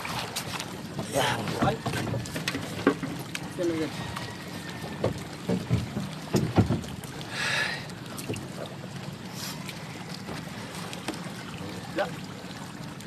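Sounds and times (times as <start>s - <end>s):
boat low rumble: 0.0s - 13.0s
sharp knocks: 5.0s - 6.9s.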